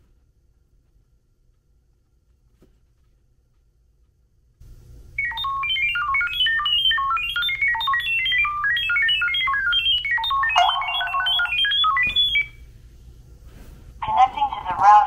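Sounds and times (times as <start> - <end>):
rapid electronic beeps from phone: 5.2 - 12.6.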